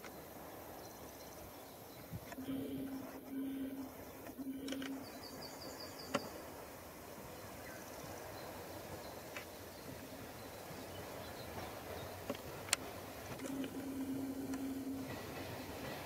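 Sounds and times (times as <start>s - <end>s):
insects: 0.0s - 16.0s
birds chirping: 0.1s - 16.0s
distant locomotive horn blasts: 2.4s - 5.5s, 13.4s - 16.0s.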